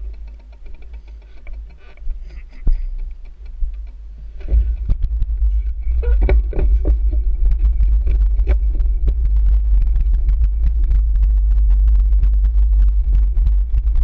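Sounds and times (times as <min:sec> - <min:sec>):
bike knocks and rattles: 0:00.0 - 0:09.2
wind and vibration rumble: 0:00.0 - 0:14.0.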